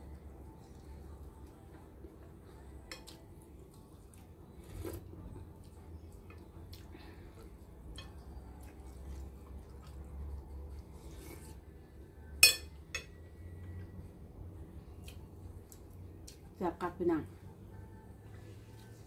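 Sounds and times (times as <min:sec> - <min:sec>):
low steady hum: 0:00.0 - 0:19.0
metal spoon clinking on plate: 0:12.4 - 0:13.2.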